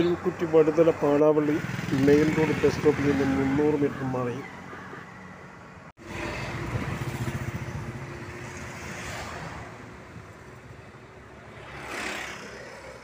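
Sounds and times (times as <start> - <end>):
vehicle passing: 0.0 - 13.0
bus engine passing: 4.5 - 13.0.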